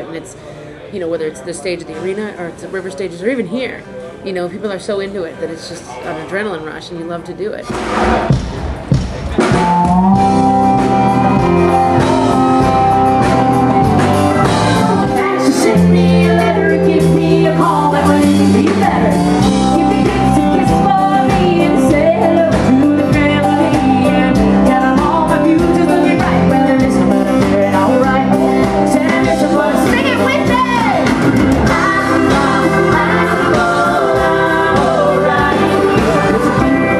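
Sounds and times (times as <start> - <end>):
drums: 7.5 - 36.9
guitars: 7.6 - 36.9
woman singing into microphone: 14.3 - 36.9.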